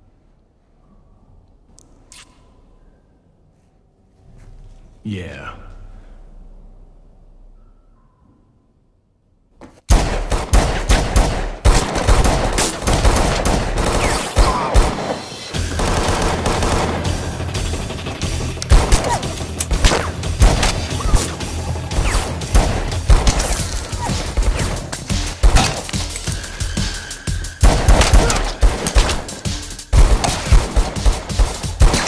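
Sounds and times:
rapid gunfire: 0:09.9 - 0:26.0, 0:27.6 - 0:32.0.

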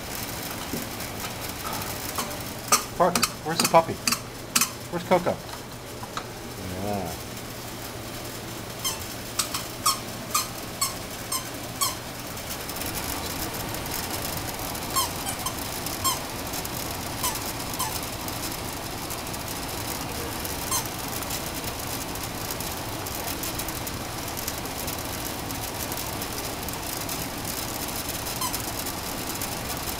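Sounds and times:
squeaky ball squeaks: 0:02.2 - 0:04.8, 0:08.8 - 0:12.0, 0:14.9 - 0:16.2, 0:17.2 - 0:18.0, 0:28.4 - 0:28.6.

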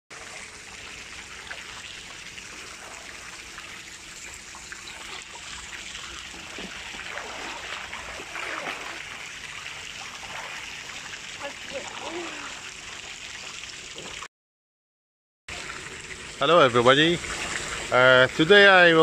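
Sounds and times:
swimmer splashing: 0:00.1 - 0:13.9
water trickling: 0:00.1 - 0:14.3, 0:15.5 - 0:19.0.

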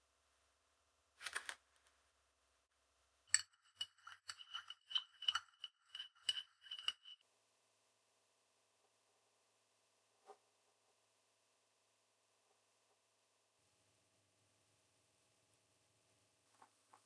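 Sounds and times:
metal rods clinking on glass: 0:03.3 - 0:07.2.

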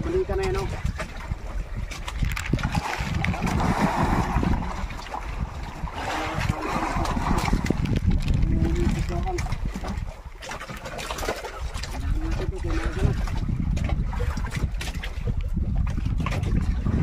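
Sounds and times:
low rumble: 0:00.0 - 0:10.4
water splashing against boat hull: 0:00.0 - 0:17.0.

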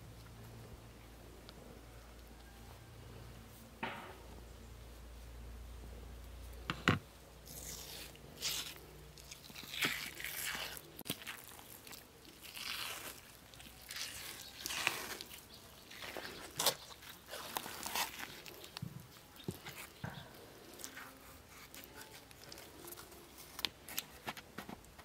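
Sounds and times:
crunching of crisp food: 0:07.3 - 0:25.0.

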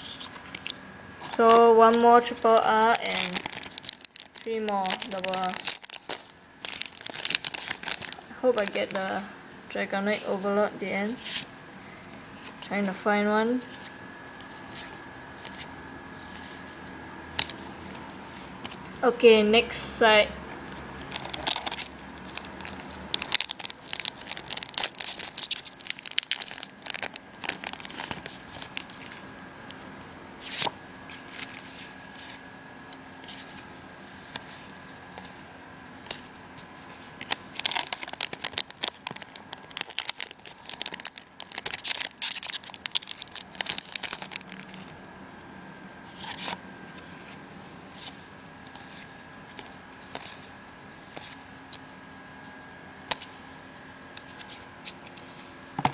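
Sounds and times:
foil packs tearing and crinkling: 0:02.7 - 0:09.2, 0:21.1 - 0:29.2, 0:36.7 - 0:45.0
cards clicking and rustling: 0:02.8 - 0:09.2, 0:21.1 - 0:29.2, 0:36.1 - 0:45.0.

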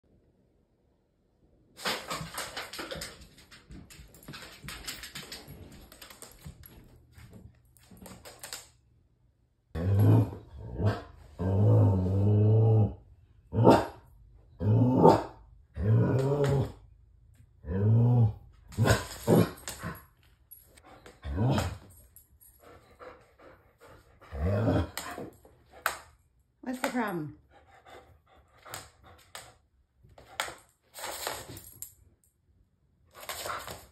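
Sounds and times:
dog growl-moans: 0:09.8 - 0:16.8, 0:17.6 - 0:19.6, 0:24.3 - 0:25.2.

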